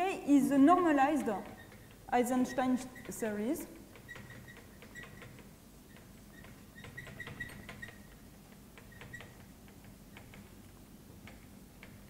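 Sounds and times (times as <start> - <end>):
whiteboard marker squeaking: 1.2 - 3.4, 4.0 - 8.2, 8.8 - 9.5.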